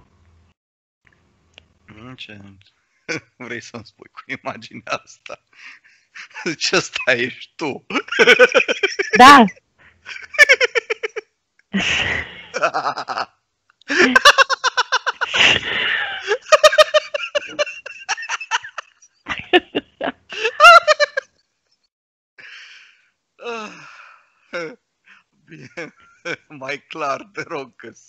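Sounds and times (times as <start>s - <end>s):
unclear speech: 1.9s - 10.3s, 13.9s - 14.3s, 19.4s - 20.6s, 23.4s - 24.0s, 24.6s - 24.8s, 25.5s - 28.0s
people laughing: 3.1s - 9.5s, 10.1s - 11.2s, 11.8s - 13.3s, 13.9s - 21.2s, 24.6s - 24.8s, 25.5s - 27.9s
gasps: 13.9s - 14.2s, 15.2s - 16.4s, 22.4s - 25.2s.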